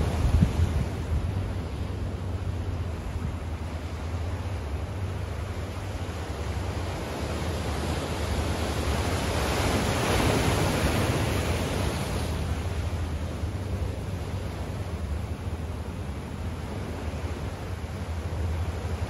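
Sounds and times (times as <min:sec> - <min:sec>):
steady low rumble: 0:00.0 - 0:09.2.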